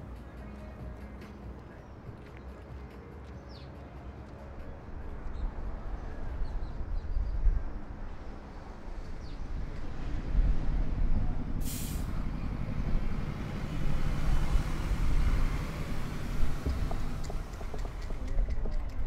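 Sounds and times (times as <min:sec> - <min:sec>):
heavy vehicle engine rumble: 0:03.9 - 0:19.0
sharp hiss of air: 0:11.6 - 0:12.2.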